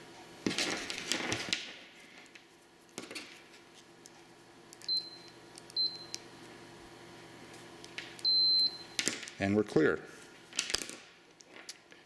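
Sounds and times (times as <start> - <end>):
short high beeps: 8.2 - 9.0.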